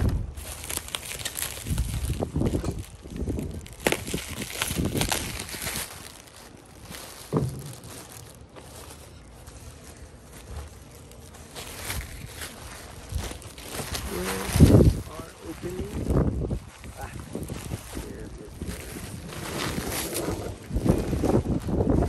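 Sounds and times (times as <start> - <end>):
plastic and bubble wrap crinkling: 0.0 - 22.0
dull thump: 7.2 - 8.3.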